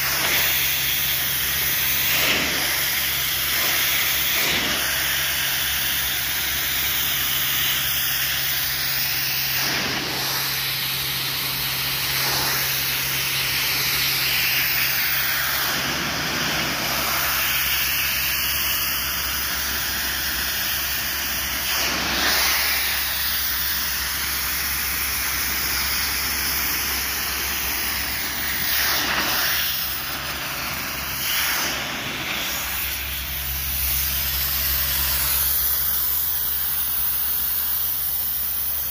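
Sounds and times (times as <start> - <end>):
pressure washer jet hissing: 0.0 - 38.9
steady low hum: 23.9 - 37.1.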